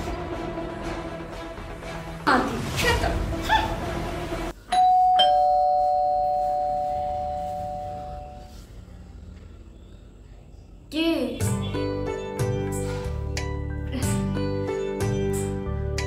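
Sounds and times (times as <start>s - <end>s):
background music: 0.0s - 4.7s, 11.4s - 16.0s
two-tone doorbell chime: 4.7s - 8.4s.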